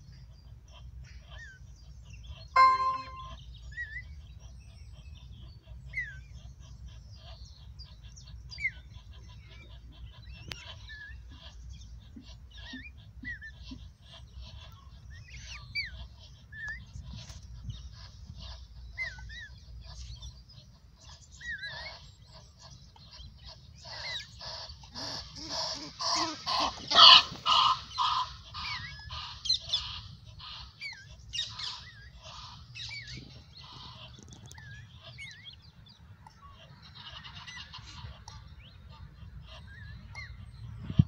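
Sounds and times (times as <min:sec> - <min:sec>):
small bird chirping: 0:02.6 - 0:03.4
geese honking: 0:24.7 - 0:30.8.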